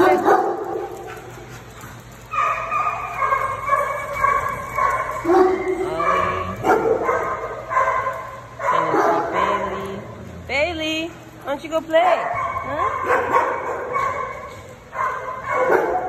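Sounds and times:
dogs whining and yipping: 0:01.1 - 0:06.6.

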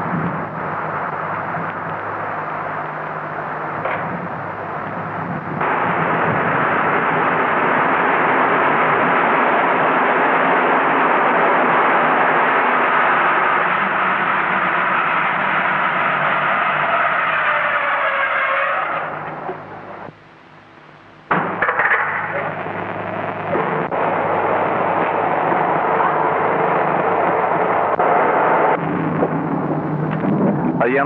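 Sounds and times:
train wheels rushing on rails: 0:00.0 - 0:20.1.

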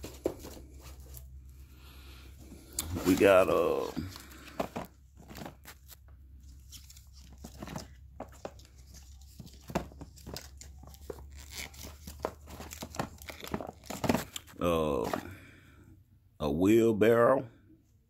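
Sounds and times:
packaging crinkling: 0:02.8 - 0:15.2.

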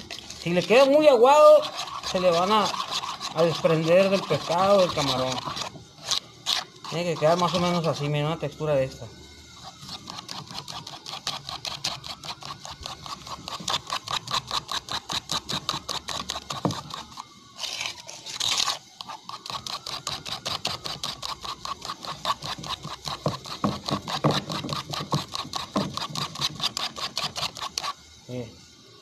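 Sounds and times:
fork beating batter in bowl: 0:00.0 - 0:08.2, 0:19.0 - 0:27.9
fork scraping bowl: 0:00.0 - 0:08.3, 0:09.6 - 0:28.0.

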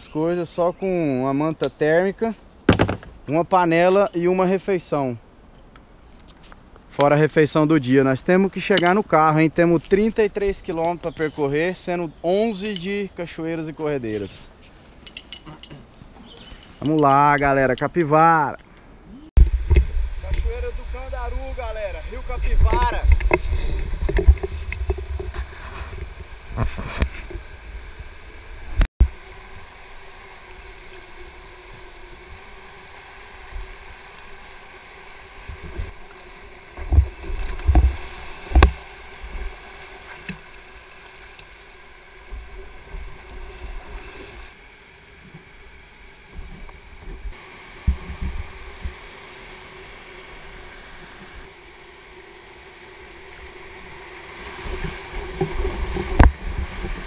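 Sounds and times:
low thumps and knocks: 0:02.7 - 0:03.2.

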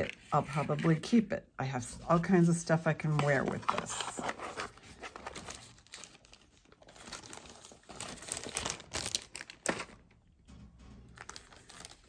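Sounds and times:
packaging rustling: 0:03.2 - 0:10.1, 0:11.2 - 0:12.0.

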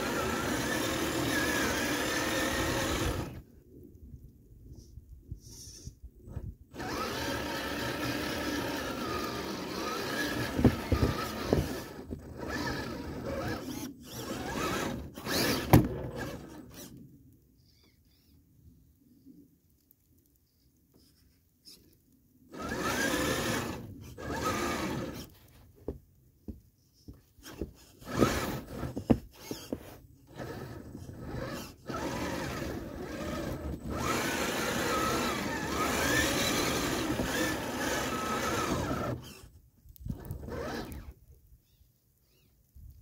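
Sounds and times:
electric motor and gears whining: 0:00.0 - 0:03.5, 0:05.6 - 0:17.0, 0:22.5 - 0:25.6, 0:27.4 - 0:41.2.

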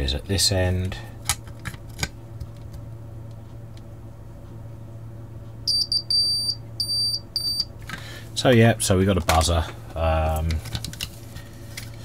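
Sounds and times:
low steady hum: 0:00.0 - 0:12.0
high-pitched buzzer beeps: 0:05.7 - 0:07.7.

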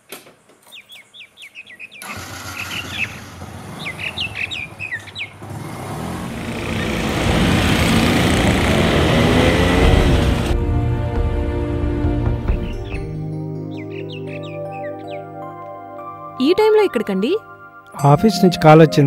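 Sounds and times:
small birds chirping: 0:00.3 - 0:07.4, 0:12.5 - 0:15.4
motorcycle engine: 0:02.0 - 0:13.0.

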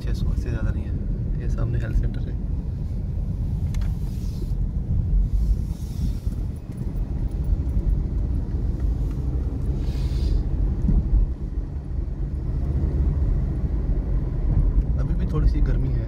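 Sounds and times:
engine and road rumble in car: 0:00.0 - 0:16.0
brief hiss: 0:09.8 - 0:10.4.

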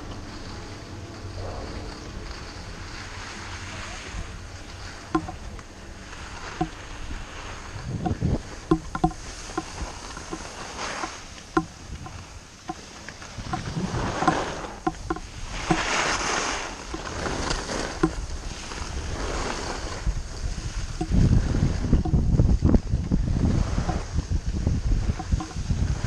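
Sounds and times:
skis scraping over snow: 0:01.1 - 0:26.0
wind buffeting microphone: 0:01.2 - 0:26.0
sharp clicks and knocks: 0:05.1 - 0:05.4, 0:08.0 - 0:12.8, 0:13.4 - 0:15.9, 0:18.0 - 0:18.3, 0:25.2 - 0:25.6.

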